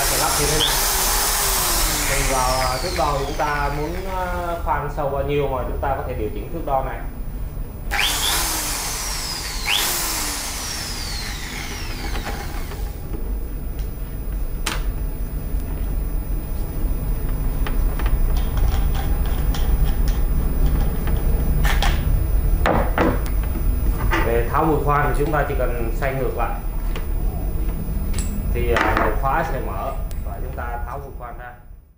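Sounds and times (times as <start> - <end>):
drill clicks: 0.0 - 4.7, 7.9 - 13.2
electric drill motor whining: 0.0 - 4.8, 7.9 - 13.2.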